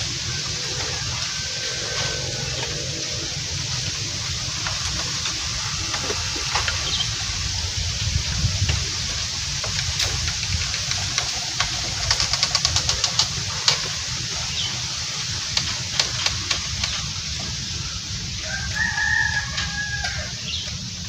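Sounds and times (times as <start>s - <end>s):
rooster crowing: 0.4s - 3.9s, 18.3s - 20.6s.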